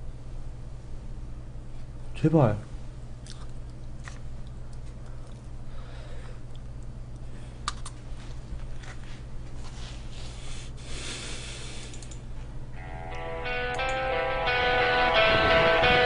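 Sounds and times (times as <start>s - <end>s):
low electrical hum: 0.0s - 16.0s
sharp clicks: 13.7s - 14.0s.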